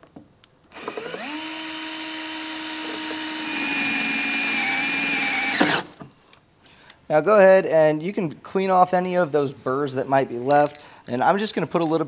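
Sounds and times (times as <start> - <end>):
cordless drill motor whine: 0.7 - 5.9.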